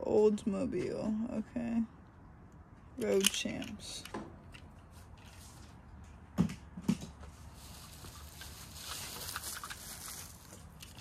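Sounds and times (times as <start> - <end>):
packaging crinkly rustling: 7.4 - 11.0.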